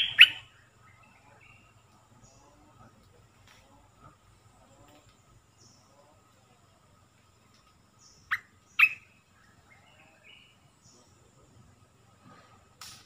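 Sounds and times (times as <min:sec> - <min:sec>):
bird sharp downward calls: 0:00.0 - 0:01.6, 0:08.0 - 0:10.6
bird twittering: 0:00.0 - 0:02.4, 0:08.0 - 0:11.1.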